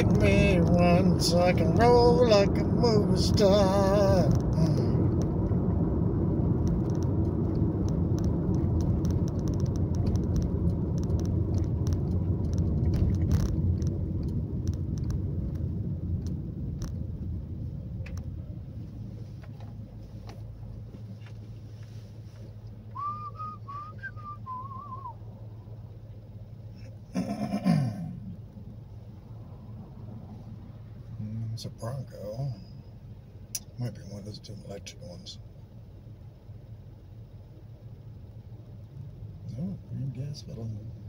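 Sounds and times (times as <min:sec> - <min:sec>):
car road and engine rumble: 0:00.0 - 0:41.0
warbling whistle: 0:22.9 - 0:25.2.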